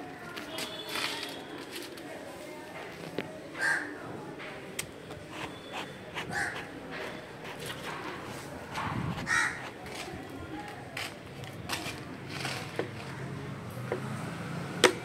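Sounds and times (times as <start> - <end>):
crow cawing: 3.6 - 4.0, 6.3 - 6.6, 9.3 - 9.6.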